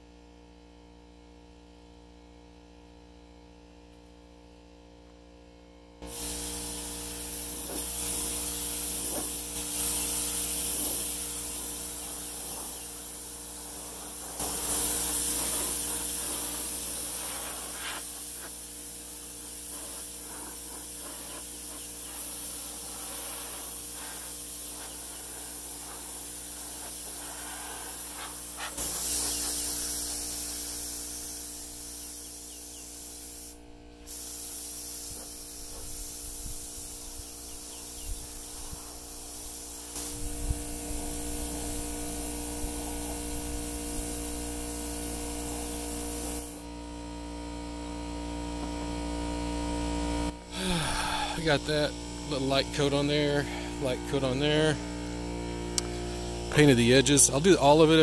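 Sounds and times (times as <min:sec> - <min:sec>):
spray gun hissing: 0:06.0 - 0:46.6.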